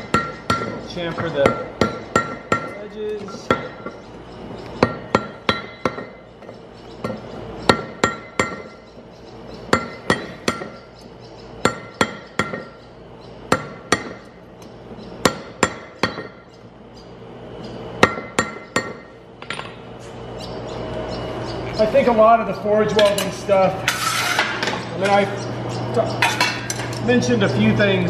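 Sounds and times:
hammer striking hot steel: 0.0s - 4.0s, 4.8s - 8.8s, 9.7s - 12.8s, 13.5s - 16.5s, 18.0s - 19.8s.

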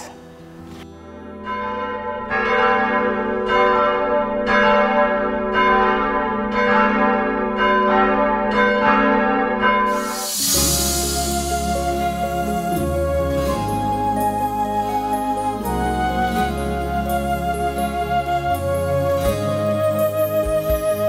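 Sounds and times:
church bells pealing: 1.2s - 12.6s
hiss: 9.9s - 13.1s.

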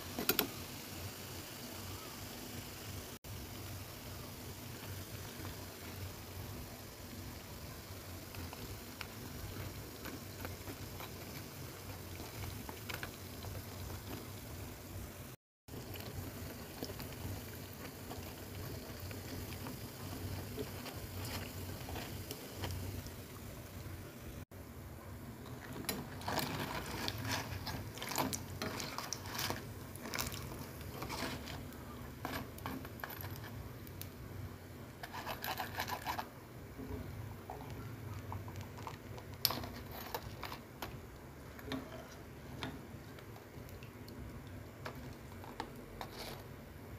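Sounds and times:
crackers deep-frying in oil: 0.0s - 46.9s
wire strainer scraping pan: 25.8s - 33.6s, 35.0s - 36.3s, 44.9s - 46.6s.

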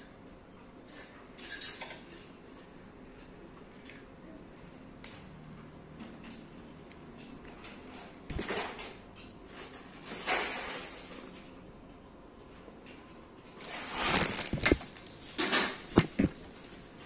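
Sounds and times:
scraping rustles: 13.6s - 17.0s.

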